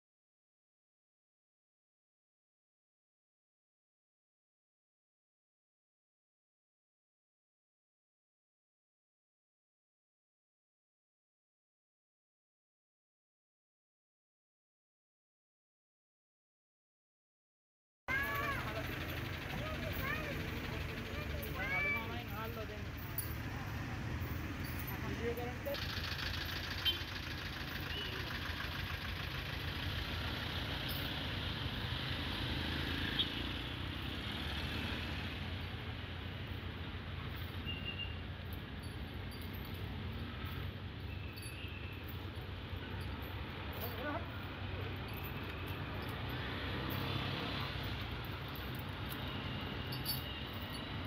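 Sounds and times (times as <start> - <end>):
low engine rumble: 18.1 - 34.4
street traffic: 18.1 - 51.0
vehicle engines idling: 18.1 - 51.0.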